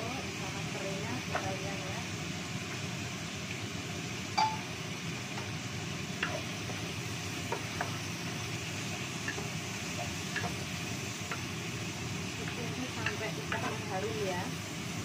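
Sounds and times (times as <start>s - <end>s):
spice paste frying: 0.0s - 15.0s
wooden spatula knocking on wok: 1.2s - 1.6s, 7.4s - 8.0s, 12.4s - 13.9s.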